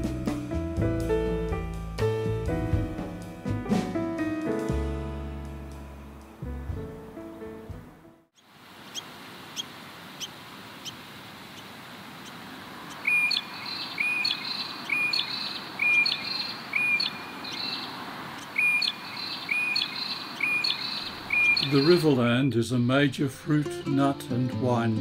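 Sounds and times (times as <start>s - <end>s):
steady background hiss: 8.4s - 23.1s
bird short upward call: 13.0s - 22.1s.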